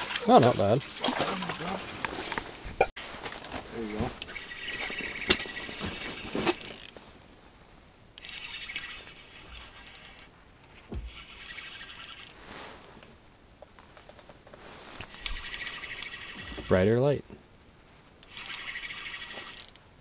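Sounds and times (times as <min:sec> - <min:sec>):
fishing gear clicks and rattles: 0:08.2 - 0:10.3, 0:18.2 - 0:19.9.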